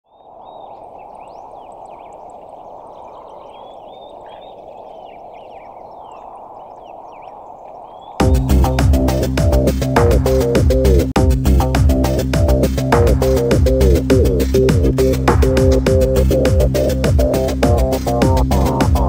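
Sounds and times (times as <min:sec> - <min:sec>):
birds chirping and whistling: 0:00.1 - 0:09.1
electronic music with a beat: 0:08.2 - 0:19.0.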